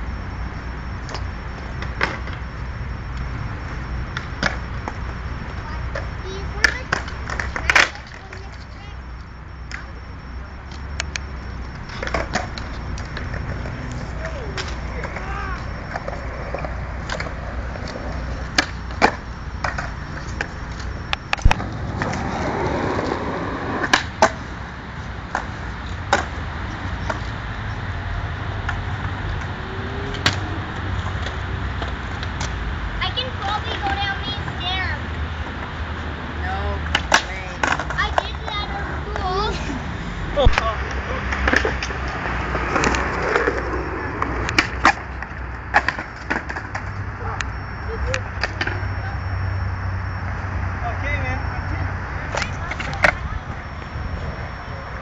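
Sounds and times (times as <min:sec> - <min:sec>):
skateboard wheels rolling on concrete: 0:00.0 - 0:55.0
skateboard clacking on ground: 0:05.9 - 0:08.8, 0:11.0 - 0:24.4, 0:25.3 - 0:26.4, 0:36.8 - 0:39.5, 0:40.4 - 0:48.9, 0:52.2 - 0:53.6.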